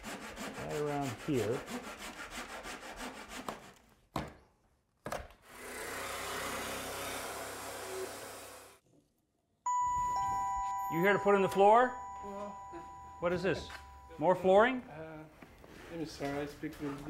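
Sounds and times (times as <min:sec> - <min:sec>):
hand saw cutting wood: 0:00.0 - 0:03.9, 0:05.4 - 0:08.8
jigsaw cutting wood board: 0:05.4 - 0:08.8.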